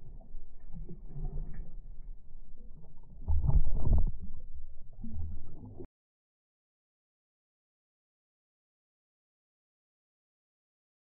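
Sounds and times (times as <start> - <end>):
muffled water sloshing and gurgling: 0.0 - 5.9.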